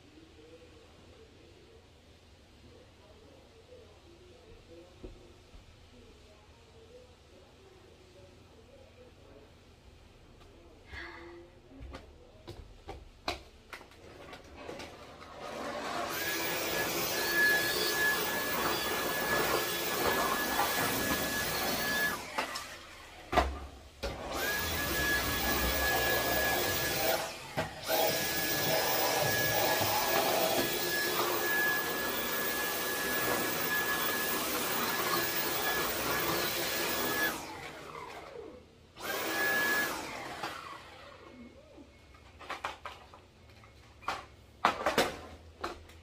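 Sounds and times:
stick vacuum cleaner whining: 14.2 - 41.4.

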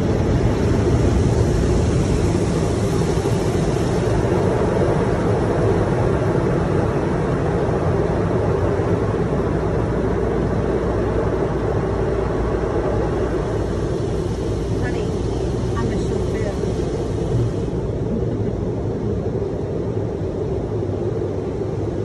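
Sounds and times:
water spray rushing over car: 0.0 - 9.2, 11.1 - 18.1
car wash equipment running: 0.0 - 22.0.

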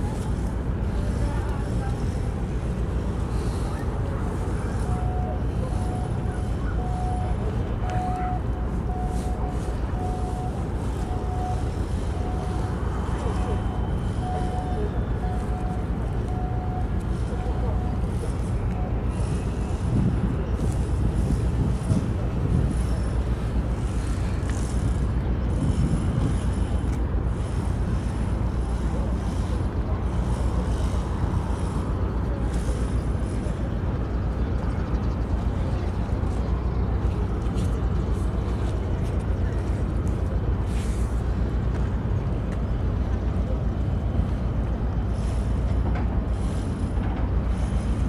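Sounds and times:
tugboat diesel engines rumbling: 0.0 - 48.0
electronic warning beeper: 4.8 - 18.1.

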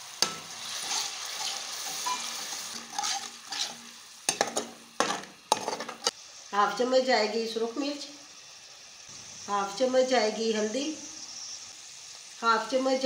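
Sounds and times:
food sizzling in hot oil: 0.0 - 13.0
metal spoon stirring: 0.2 - 6.1.

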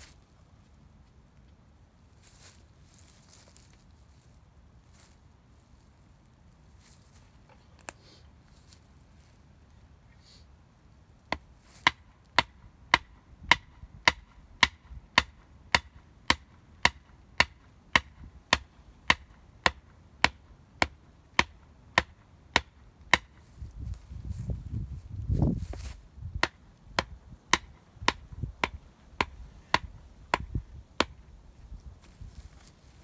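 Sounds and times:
hatchet chopping wood: 11.3 - 23.4, 26.3 - 31.2.

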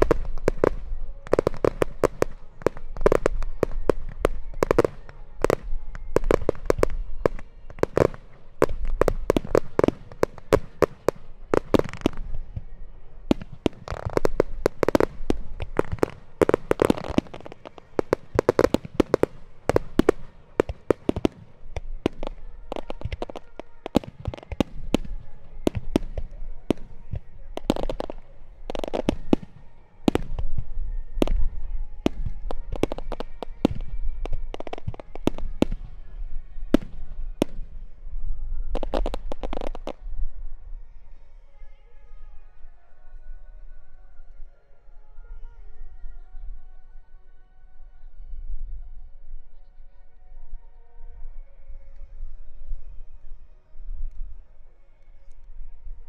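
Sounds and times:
fireworks bursting with sharp bangs: 0.0 - 40.5.

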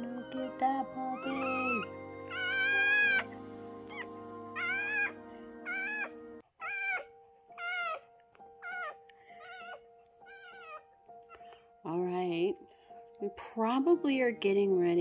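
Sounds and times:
puppy squealing: 1.2 - 11.4.

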